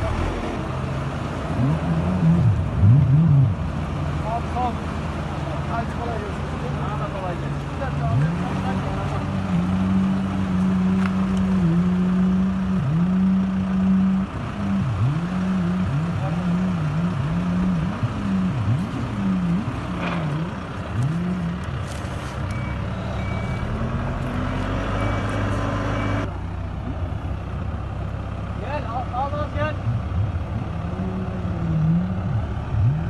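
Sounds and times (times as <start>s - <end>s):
heavy vehicle engine running: 0.0s - 33.0s
reversing alarm beeping: 22.5s - 23.8s, 24.9s - 26.3s.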